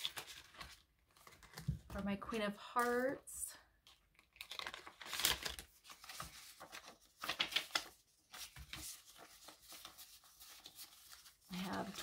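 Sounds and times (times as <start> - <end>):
paper bills rustling: 4.2 - 12.0.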